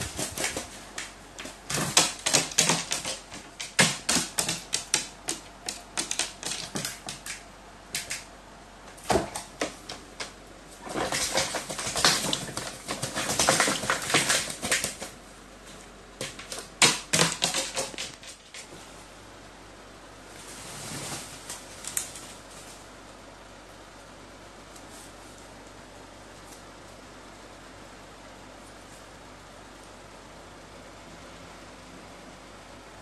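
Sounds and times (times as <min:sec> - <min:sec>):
wings flapping: 0:10.8 - 0:15.2.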